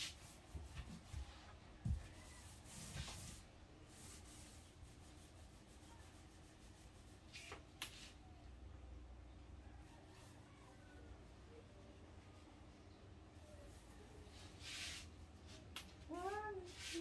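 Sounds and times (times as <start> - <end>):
paint roller rubbing on wood: 2.0 - 7.6, 16.2 - 17.0.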